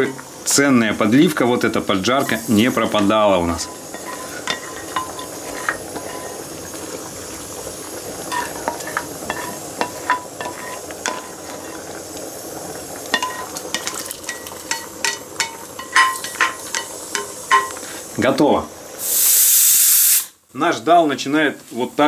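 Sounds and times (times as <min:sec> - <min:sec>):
oil sizzling: 0:00.0 - 0:22.0
spoon scraping frying pan: 0:02.0 - 0:12.3, 0:13.0 - 0:18.1.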